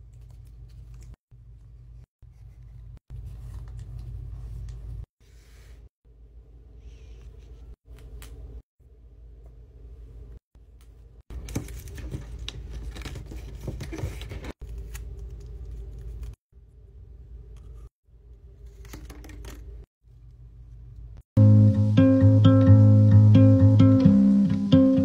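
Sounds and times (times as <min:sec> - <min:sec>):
paper crackling and rustling: 0:11.3 - 0:16.4.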